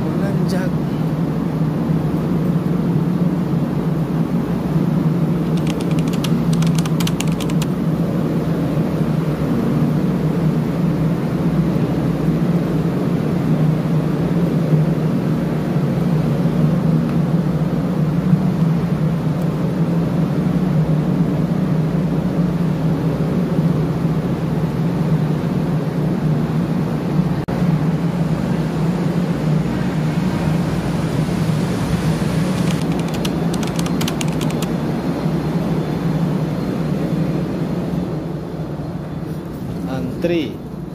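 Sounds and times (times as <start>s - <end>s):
light clicks: 5.4s - 7.8s, 32.6s - 34.7s.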